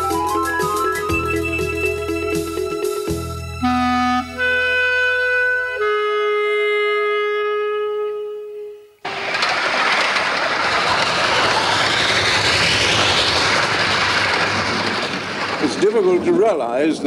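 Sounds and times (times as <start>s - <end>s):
held woodwind note: 3.6s - 9.0s
steam locomotive hissing: 9.1s - 17.0s.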